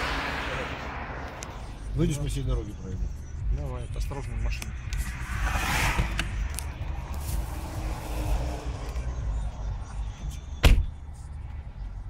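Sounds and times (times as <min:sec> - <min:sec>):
highway traffic rumble: 0:00.0 - 0:12.0
car door slamming: 0:10.6 - 0:11.0.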